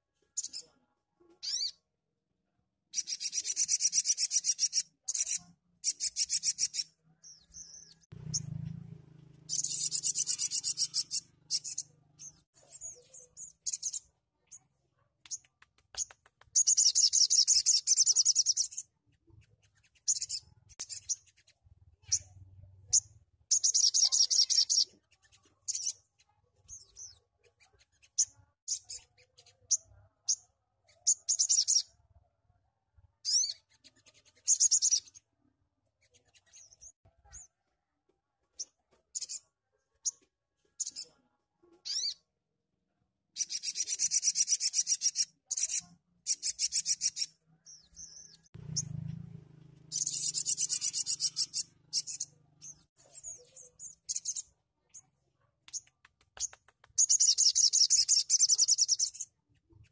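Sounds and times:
bird high chirps: 0:01.4 - 0:01.9, 0:02.9 - 0:08.7, 0:09.4 - 0:32.0, 0:33.2 - 0:35.2, 0:38.5 - 0:40.2, 0:40.8 - 0:42.3, 0:43.4 - 0:49.0, 0:49.8 - 0:55.1, 0:55.7 - 0:59.9
bird rapid twittering trills: 0:09.5 - 0:14.0, 0:19.6 - 0:26.0, 0:49.9 - 0:54.4, 0:56.4 - 0:59.2.

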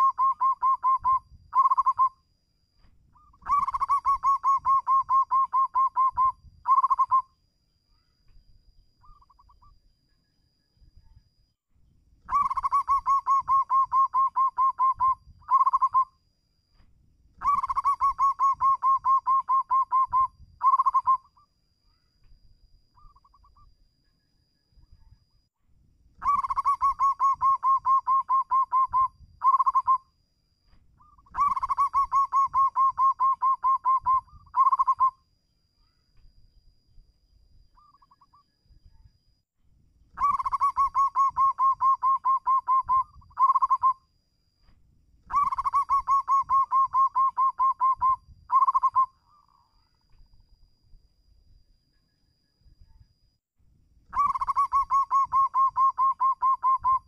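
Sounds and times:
dove staccato cooing: 0:00.0 - 0:02.1, 0:03.2 - 0:07.2, 0:12.3 - 0:16.0, 0:17.4 - 0:21.2, 0:26.2 - 0:30.0, 0:31.0 - 0:35.1, 0:40.2 - 0:43.9, 0:45.3 - 0:49.1, 0:54.2 - 0:57.0.

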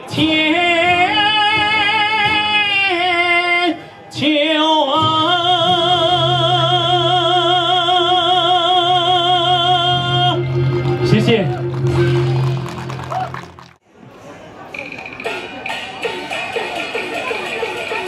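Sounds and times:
man singing with vibrato: 0:00.0 - 0:11.7
singer taking a breath: 0:03.8 - 0:04.1
backing track: 0:05.0 - 0:13.8.

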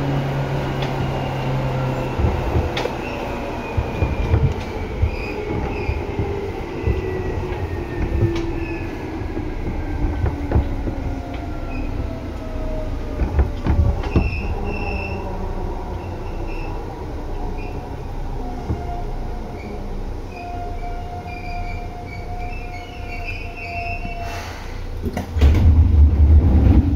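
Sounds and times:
train rumble: 0:00.0 - 0:26.9
wheels knocking over rail joints: 0:00.7 - 0:11.5
wheel squeals: 0:00.8 - 0:10.7, 0:13.4 - 0:15.3, 0:19.5 - 0:24.6.

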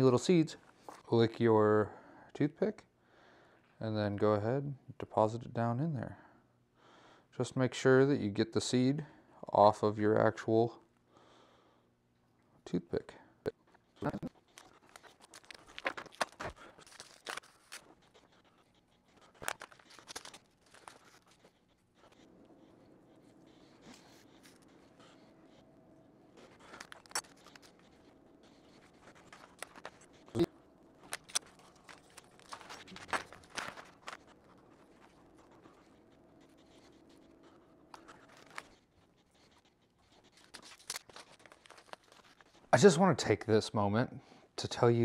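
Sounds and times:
clicks and rustles of handling: 0:13.6 - 0:42.8.

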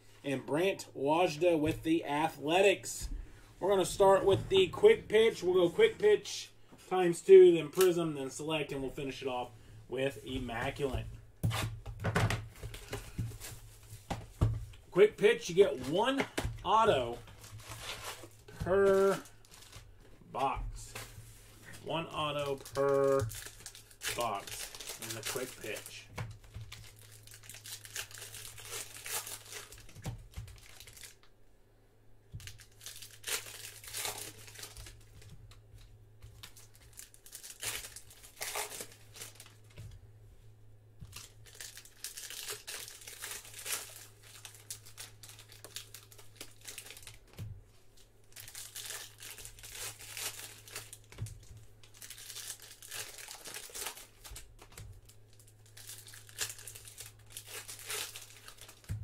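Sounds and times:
foil wrappers crinkling and tearing: 0:15.0 - 0:31.2, 0:32.4 - 0:39.8, 0:41.1 - 0:47.4, 0:48.0 - 0:59.0.

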